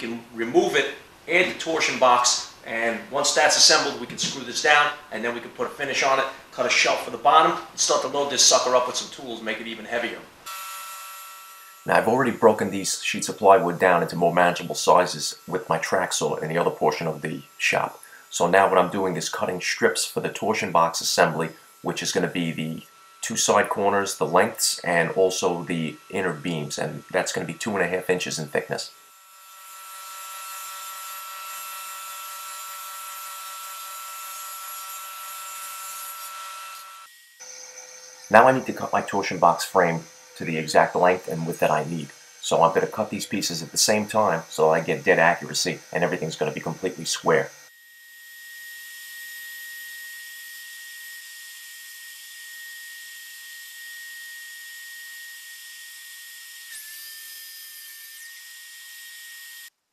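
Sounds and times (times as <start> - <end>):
table saw cutting plywood: 0.0 - 59.7
dust vacuum hissing and whining: 37.4 - 47.7.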